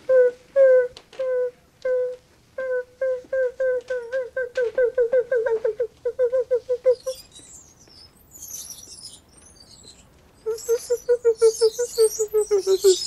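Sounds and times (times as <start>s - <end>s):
faint high chirps: 5.6s - 13.0s
squeaky trolley wheel squealing: 7.0s - 13.0s.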